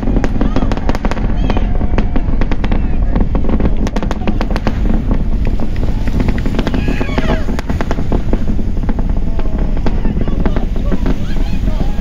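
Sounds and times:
distant rocket engine rumble crackling: 0:00.0 - 0:12.0.

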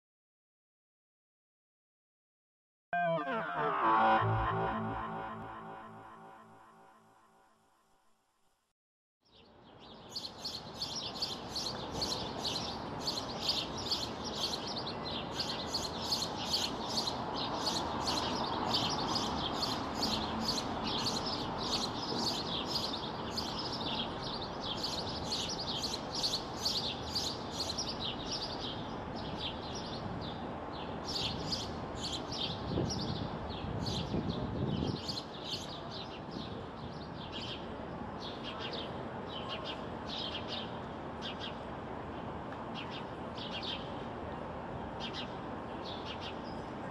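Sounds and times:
sparrow chirping: 0:09.8 - 0:29.9.

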